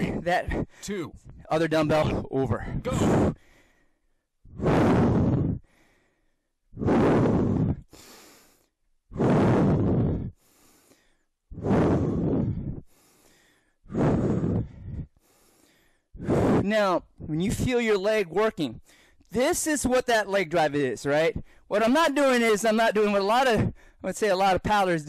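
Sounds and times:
man exhaling forcefully: 2.7s - 3.8s, 4.5s - 6.1s, 6.8s - 16.7s
hissing in-breaths: 4.5s - 16.7s.

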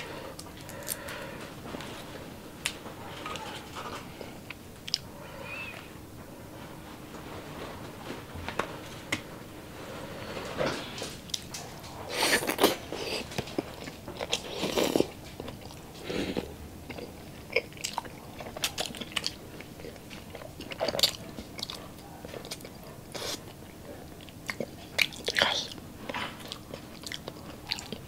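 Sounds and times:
close-up chewing and biting: 11.3s - 28.0s.

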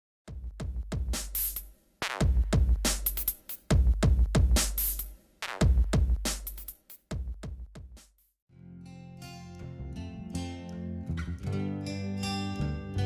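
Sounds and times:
electronic music with drum-machine beat: 0.3s - 8.1s.

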